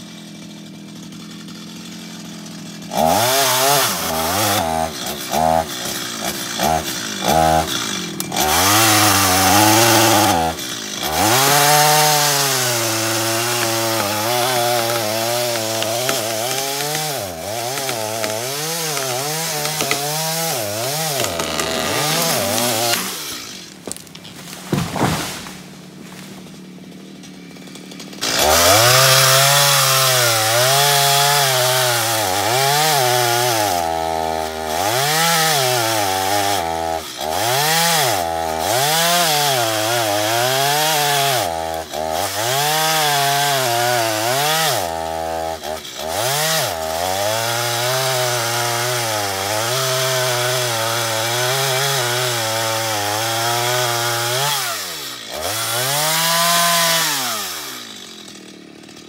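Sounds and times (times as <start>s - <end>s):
chainsaw cutting log: 0.0s - 59.0s.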